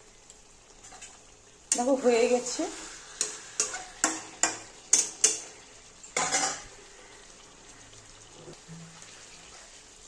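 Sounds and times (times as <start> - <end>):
spatula scraping pan: 2.7 - 6.7
metal spatula clinking on pan: 3.2 - 6.7.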